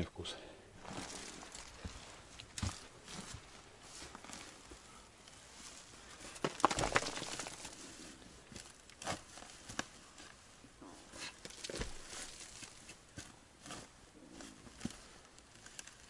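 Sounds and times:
boots stepping through dry leaves: 0.8s - 4.7s.

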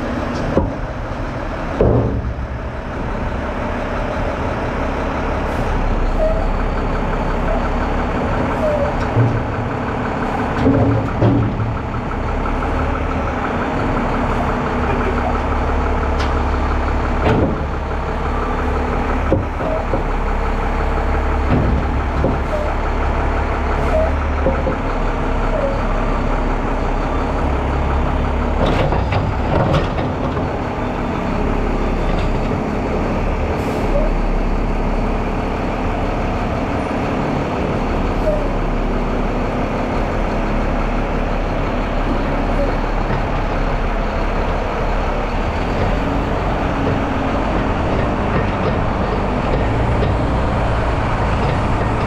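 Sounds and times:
diesel engine running: 0.0s - 52.0s
metal bangs and clanks: 0.2s - 2.8s, 8.6s - 12.1s, 21.4s - 22.9s.

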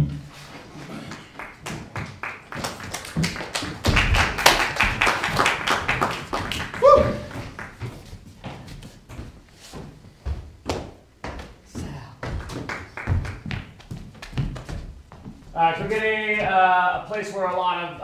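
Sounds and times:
small audience clapping: 0.6s - 8.3s, 12.2s - 14.9s
vocal whoop: 6.8s - 7.4s.

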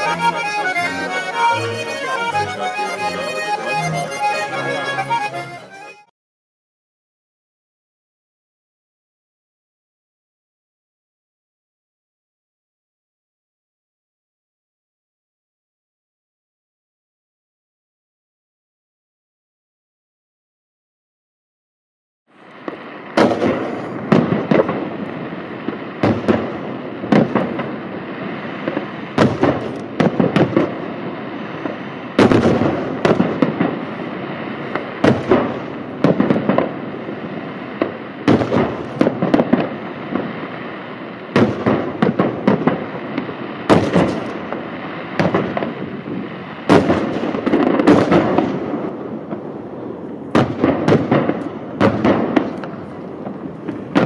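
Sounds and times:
small firework pops and rumble: 22.5s - 27.9s, 28.6s - 36.8s, 37.6s - 49.5s, 50.1s - 54.0s
firework shells bursting: 22.6s - 37.0s, 41.3s - 45.9s.

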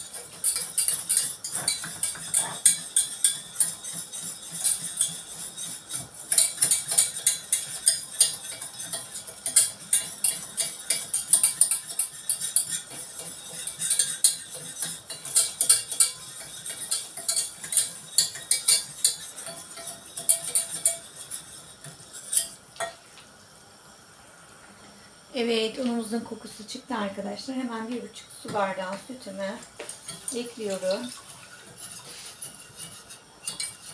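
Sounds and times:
spoon scraping a steel pot: 0.0s - 23.0s, 29.3s - 33.9s.

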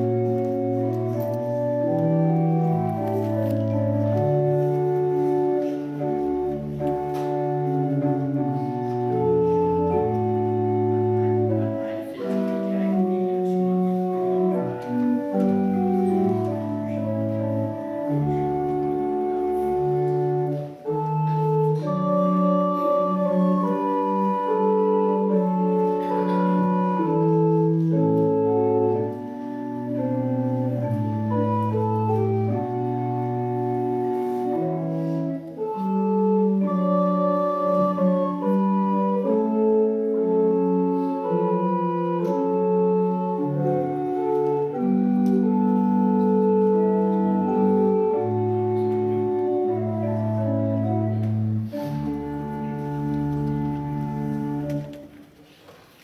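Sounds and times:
church organ playing chords: 0.0s - 55.4s.

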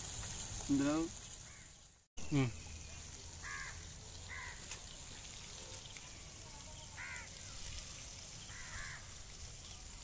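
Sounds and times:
crow cawing: 1.4s - 1.8s, 3.4s - 4.7s, 7.0s - 7.4s, 8.5s - 9.2s.

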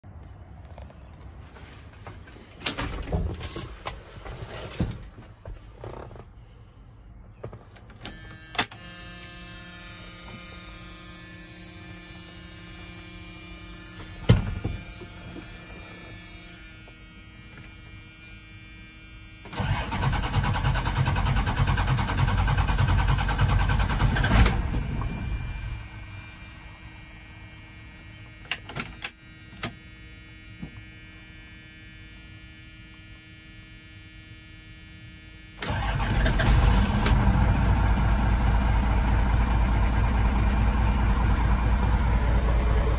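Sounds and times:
diesel engine cranking: 19.5s - 25.8s, 35.6s - 42.9s.

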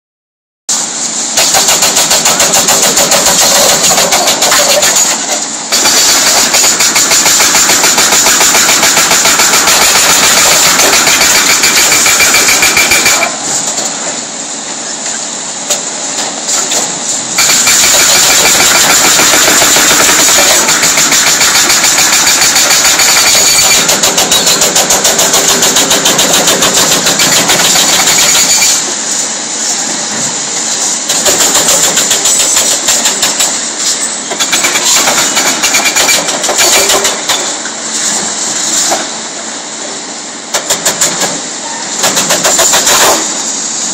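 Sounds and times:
excavator engines running: 0.7s - 43.9s
hydraulic breaker hammering concrete: 1.3s - 13.5s, 16.7s - 29.0s, 31.1s - 33.6s, 34.3s - 37.6s, 40.5s - 41.4s, 42.0s - 43.4s.

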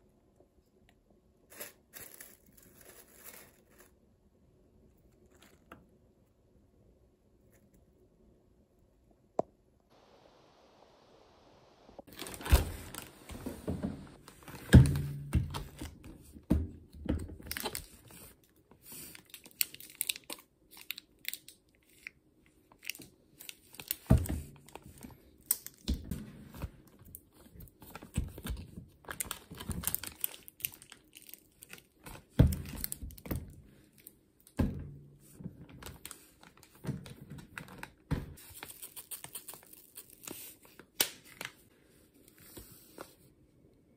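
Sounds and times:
plastic bag crinkling: 12.1s - 13.3s, 29.0s - 33.2s.

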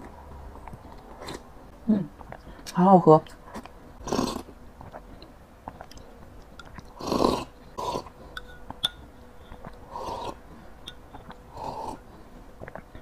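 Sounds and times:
person slurping from mug: 7.0s - 8.1s, 9.9s - 10.4s
metal spoon clicking on glass: 8.4s - 9.0s.

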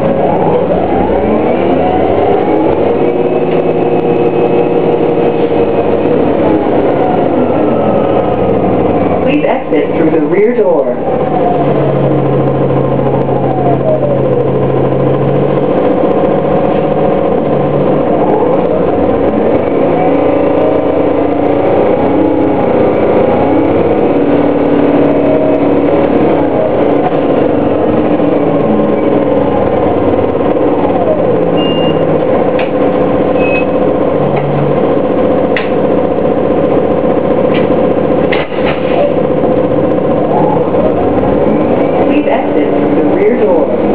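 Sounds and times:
diesel engine droning: 0.0s - 43.9s
short high beeps: 31.6s - 32.1s, 33.4s - 33.7s.

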